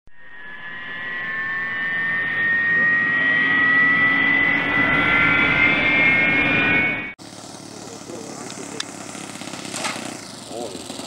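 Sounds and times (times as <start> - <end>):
high tones gliding upward: 0.1 - 7.2
rising whoosh: 0.1 - 7.2.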